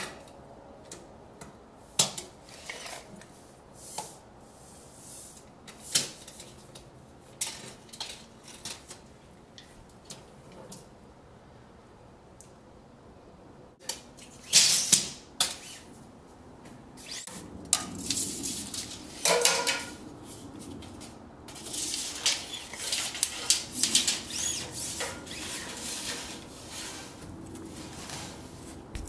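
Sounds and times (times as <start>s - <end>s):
wire rustling and scraping on wood: 2.4s - 9.7s, 17.0s - 29.0s.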